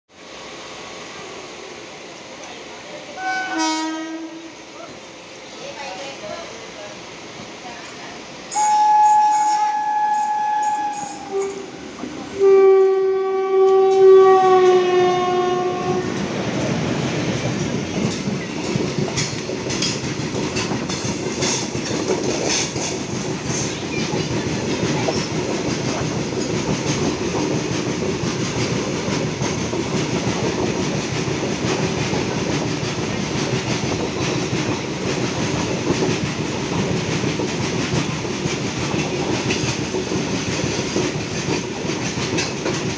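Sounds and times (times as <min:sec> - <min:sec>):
freight train rumbling past: 0:00.1 - 0:42.9
train horn blasts: 0:03.2 - 0:04.6, 0:08.5 - 0:16.2
wheels clacking over rail joints: 0:13.6 - 0:42.9.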